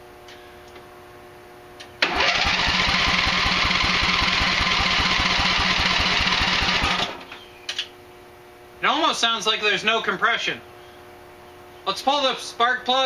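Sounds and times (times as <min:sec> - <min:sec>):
engine cranking by starter: 0:02.0 - 0:07.3.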